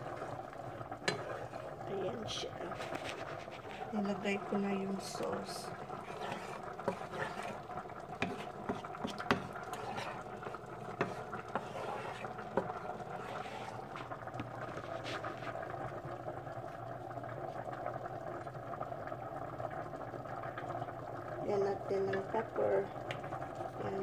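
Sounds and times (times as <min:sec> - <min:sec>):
wooden spoon stirring sauce: 0:00.0 - 0:15.7
sauce simmering: 0:00.0 - 0:24.0.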